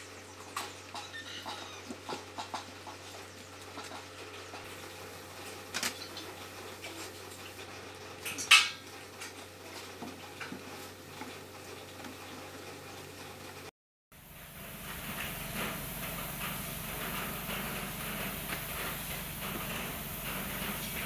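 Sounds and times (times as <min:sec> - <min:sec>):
steady low hum: 0:14.2 - 0:21.0.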